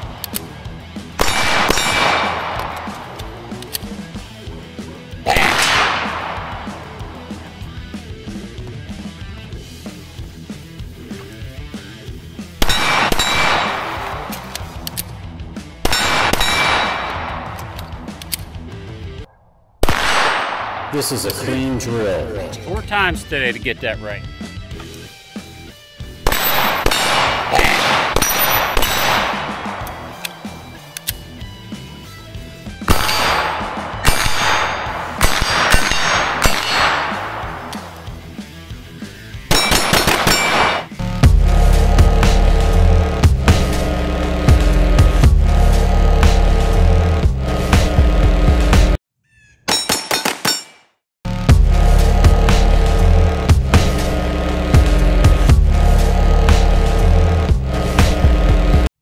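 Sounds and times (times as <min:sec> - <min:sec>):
background music: 0:00.0 - 0:19.3, 0:20.0 - 0:49.0, 0:51.3 - 0:58.9
pistol shots: 0:01.2 - 0:03.6, 0:05.3 - 0:07.2, 0:12.6 - 0:14.7, 0:15.8 - 0:18.1, 0:19.8 - 0:21.5, 0:26.2 - 0:31.0, 0:32.9 - 0:38.1, 0:39.5 - 0:41.0, 0:49.7 - 0:50.7
steel targets ringing: 0:26.3 - 0:29.4, 0:33.0 - 0:37.4, 0:39.5 - 0:40.9, 0:49.7 - 0:50.9
steel target clanging: 0:49.7 - 0:51.0.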